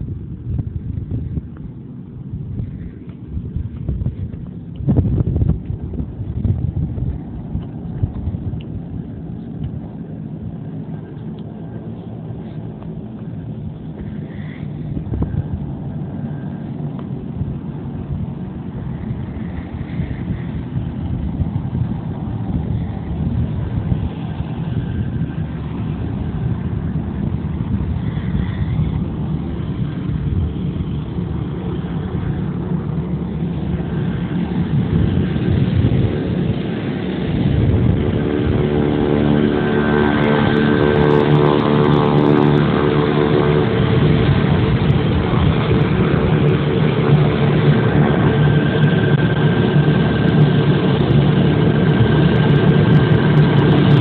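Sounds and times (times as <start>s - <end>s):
turboprop engines rumbling: 0.0s - 54.0s.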